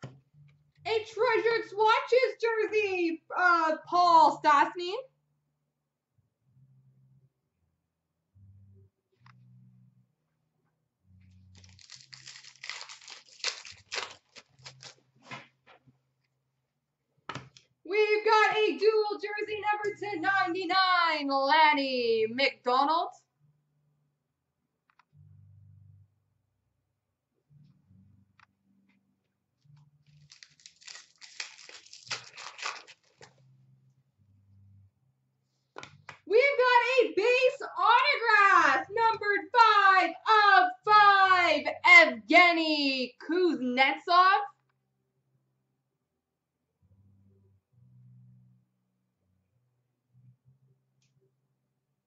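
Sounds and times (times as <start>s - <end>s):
foil wrapper crinkling and tearing: 11.5s - 15.0s, 30.1s - 33.3s.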